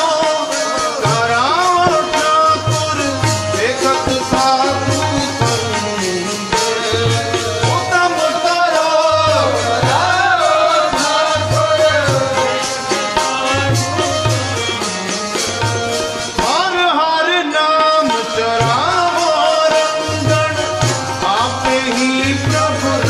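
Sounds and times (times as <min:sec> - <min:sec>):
harmonium reed tones: 0:00.0 - 0:23.0
person singing: 0:00.0 - 0:23.0
tabla rhythm: 0:00.0 - 0:23.0.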